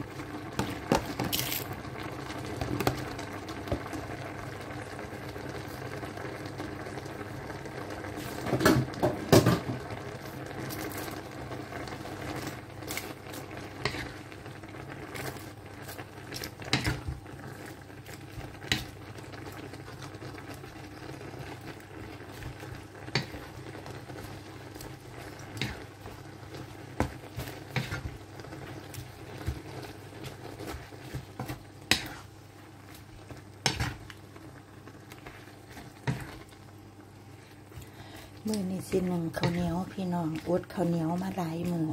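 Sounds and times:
curry bubbling: 0:00.0 - 0:41.9.

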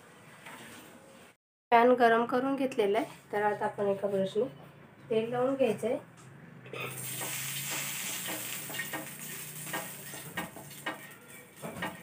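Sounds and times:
oil sizzling on a pan: 0:06.9 - 0:12.0.

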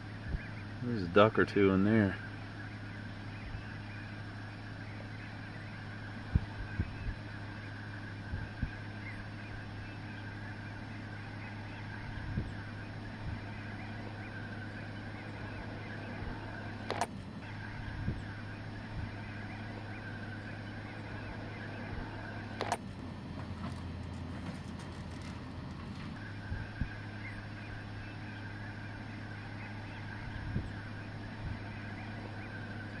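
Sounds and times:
ducks and geese calling: 0:00.0 - 0:33.0
steady low hum: 0:00.0 - 0:33.0
low bumps: 0:11.1 - 0:28.0.

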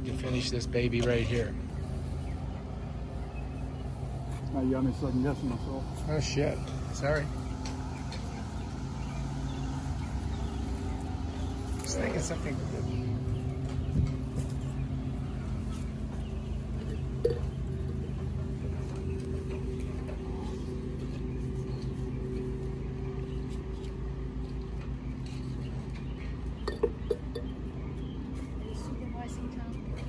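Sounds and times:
engine humming: 0:00.0 - 0:30.0
light clinks: 0:26.6 - 0:27.6.

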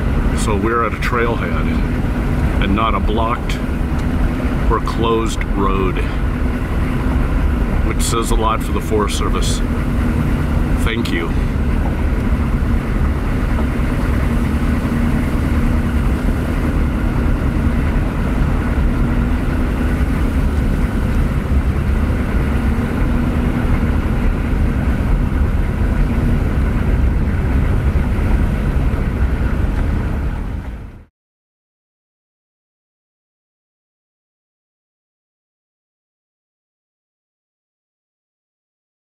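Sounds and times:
truck driving on dirt road: 0:00.0 - 0:31.1.

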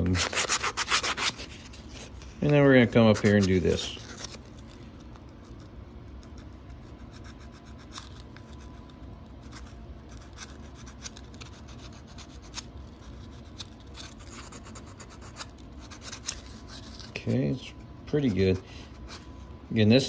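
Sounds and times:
sandpaper scratching: 0:00.0 - 0:01.6.

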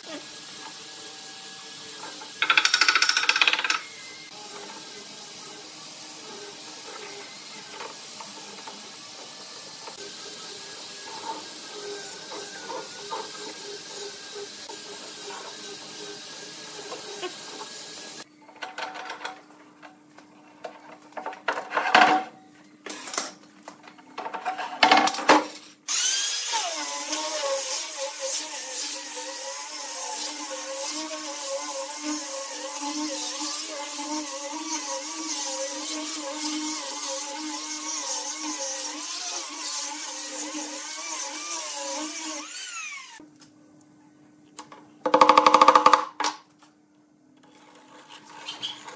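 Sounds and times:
angle grinder sanding wood: 0:04.0 - 0:18.3, 0:25.9 - 0:43.2.

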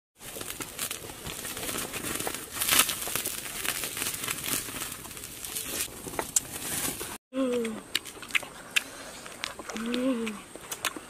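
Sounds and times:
campfire crackling and popping: 0:00.2 - 0:07.2.

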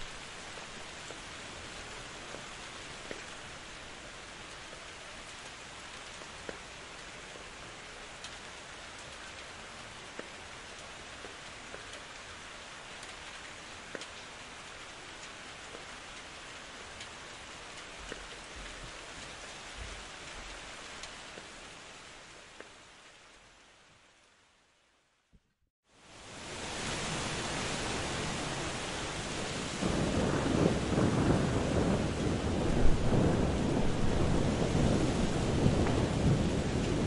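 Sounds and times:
steady rain hiss: 0:00.0 - 0:37.0
raindrops ticking: 0:01.9 - 0:21.6, 0:31.8 - 0:37.0.

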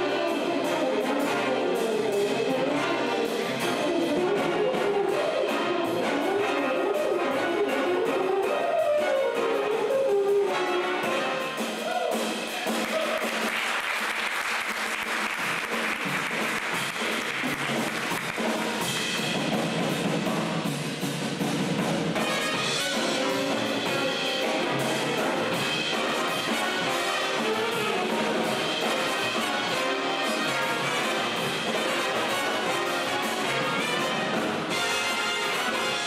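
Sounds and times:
brass: 0:00.0 - 0:36.0
drum kit: 0:00.0 - 0:36.0
piano: 0:00.0 - 0:36.0
saxophones: 0:22.2 - 0:36.0.

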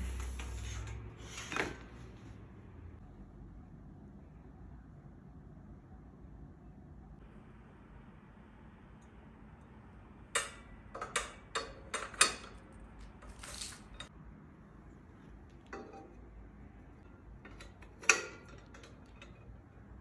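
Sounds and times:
metal rack parts clinking: 0:17.0 - 0:19.8.

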